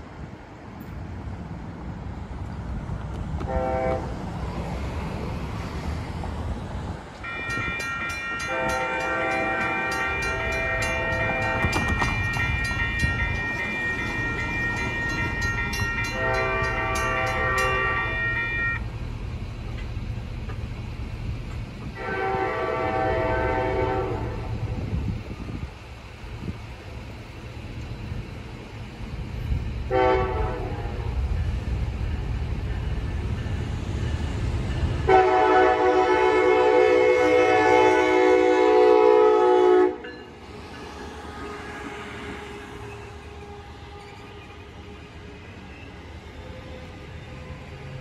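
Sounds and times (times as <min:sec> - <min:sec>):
low rumble of approaching train: 0:00.0 - 0:48.0
locomotive horn blasts: 0:03.4 - 0:04.1, 0:07.3 - 0:12.2, 0:15.8 - 0:18.8, 0:22.0 - 0:24.6, 0:29.9 - 0:31.2, 0:35.1 - 0:40.1
mechanical crossing bell ringing: 0:07.3 - 0:18.8.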